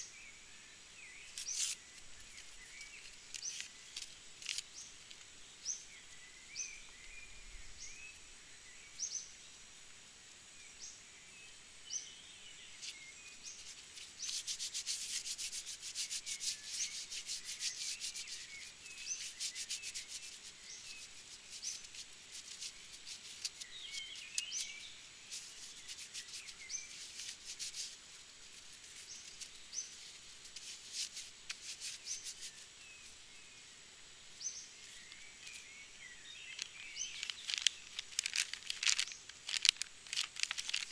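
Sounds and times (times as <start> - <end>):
bird chirping: 0.0 - 9.6, 10.6 - 40.9
plastic packets crinkling: 36.5 - 40.9.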